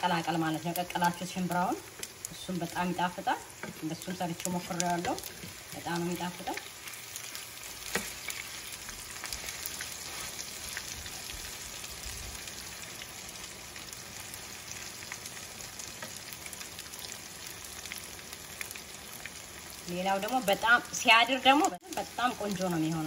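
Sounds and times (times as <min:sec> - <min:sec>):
oil sizzling in a pan: 0:00.0 - 0:23.0.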